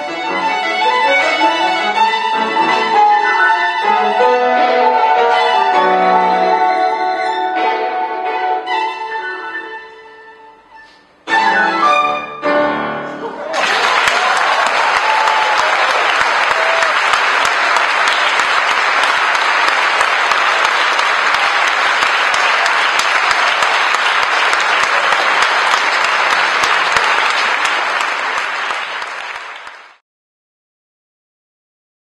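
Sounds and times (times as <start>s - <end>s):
audience applauding: 13.4s - 30.0s.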